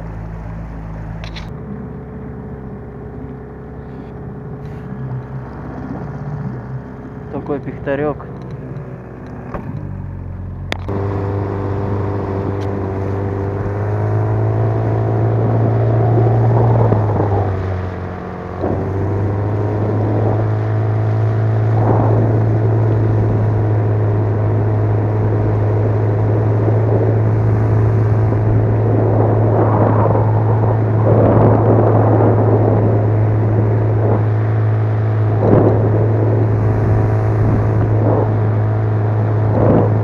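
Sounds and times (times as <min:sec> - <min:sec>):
outboard motor droning: 0:00.0 - 0:40.0
water wash: 0:00.0 - 0:40.0.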